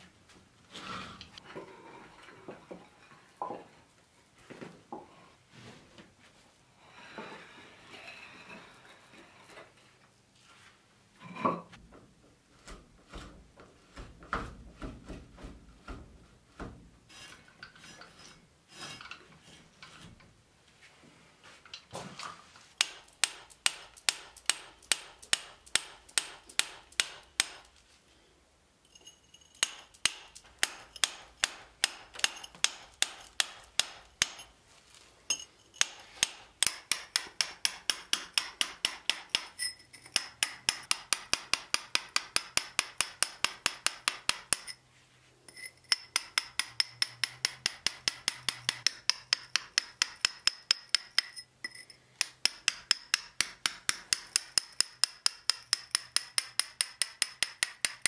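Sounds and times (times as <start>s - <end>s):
hammer striking chisel on stone: 22.8s - 27.7s, 29.5s - 34.5s, 35.3s - 44.8s, 45.5s - 58.0s
hoist chain clinking: 35.3s - 36.0s.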